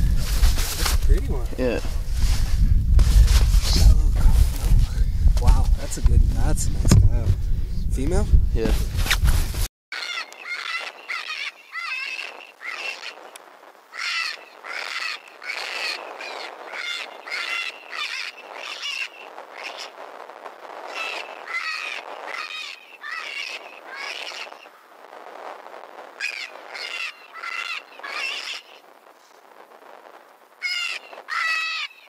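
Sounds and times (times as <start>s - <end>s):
rabbit distress call squeals: 10.0s - 13.3s, 13.9s - 19.9s, 20.9s - 24.7s, 26.2s - 28.8s, 30.6s - 32.0s.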